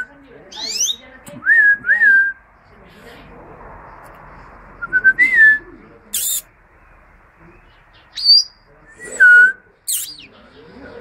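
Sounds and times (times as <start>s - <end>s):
bird chirping: 0.4s - 1.5s, 5.6s - 11.0s.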